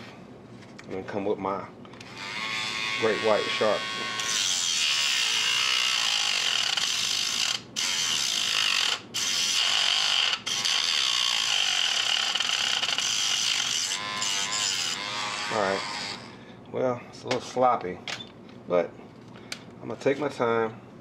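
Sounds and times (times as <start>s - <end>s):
rotary tool grinding plastic: 2.0s - 16.3s.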